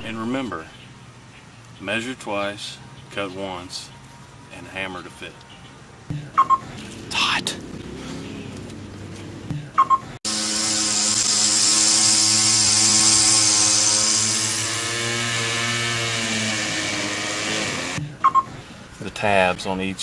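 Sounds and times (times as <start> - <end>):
string trimmer running: 10.3 - 18.0.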